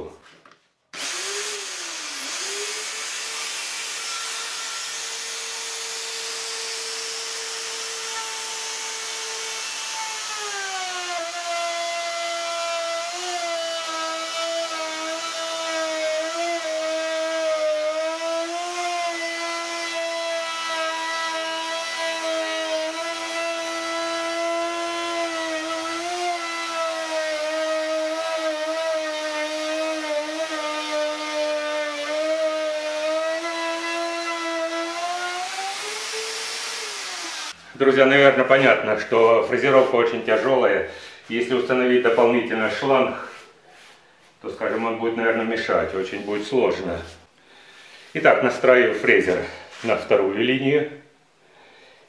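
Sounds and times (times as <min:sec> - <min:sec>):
hand router whining: 0:00.9 - 0:37.8.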